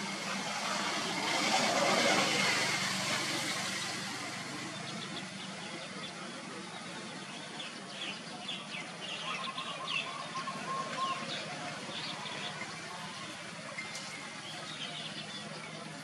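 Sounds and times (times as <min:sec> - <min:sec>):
small birds chirping: 0:03.3 - 0:16.0.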